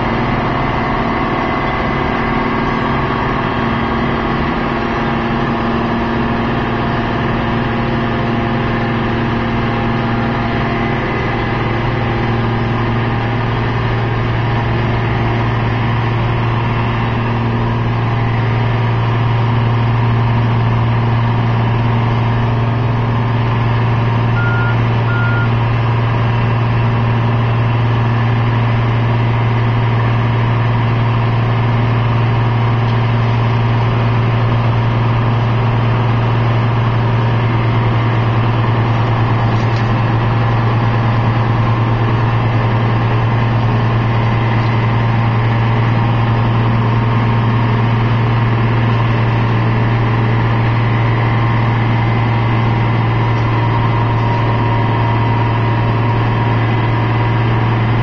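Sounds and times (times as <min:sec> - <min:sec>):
heavy diesel engines droning: 0:00.0 - 0:58.0
short high beeps: 0:24.4 - 0:25.6.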